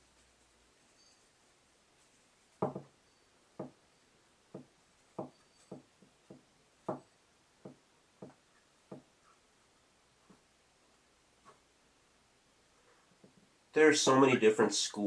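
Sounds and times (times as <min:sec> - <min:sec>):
knocks and clicks on wooden desk: 0:02.6 - 0:02.9, 0:03.6 - 0:03.8, 0:04.5 - 0:09.1.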